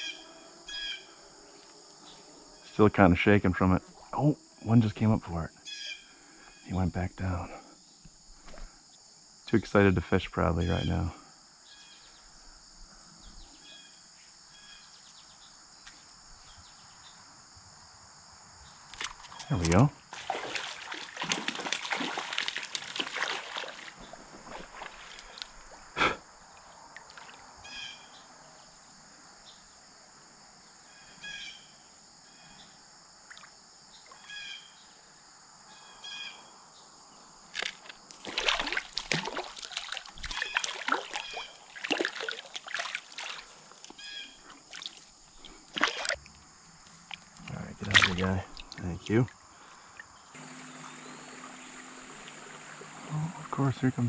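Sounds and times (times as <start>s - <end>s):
high insect drone: 0.0s - 54.0s
water splashing: 19.0s - 25.8s, 37.6s - 46.3s, 47.0s - 54.0s.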